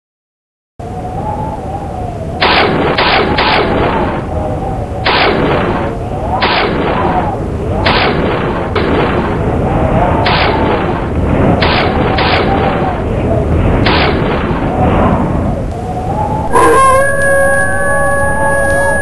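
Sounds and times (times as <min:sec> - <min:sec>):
loud bangs: 0:05.0 - 0:15.6
wavering tone: 0:15.7 - 0:19.0.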